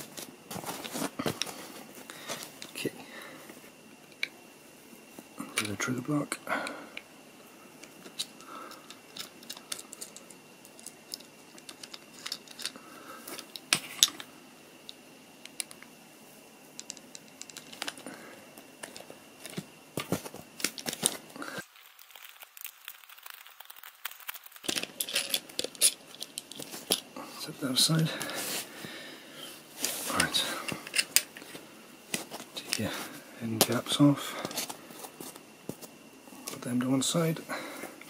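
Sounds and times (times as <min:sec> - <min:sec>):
screwdriver and metal parts clicking: 0:24.6 - 0:27.0.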